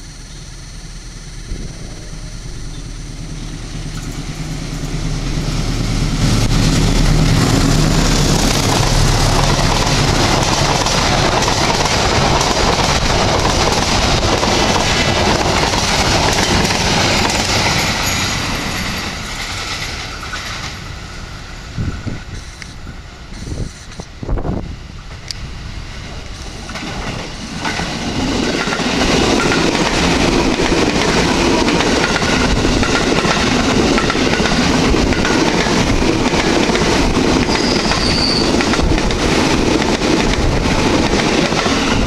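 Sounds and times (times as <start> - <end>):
locomotive engine hum: 0.0 - 42.0
train wheels rushing on rails: 0.0 - 42.0.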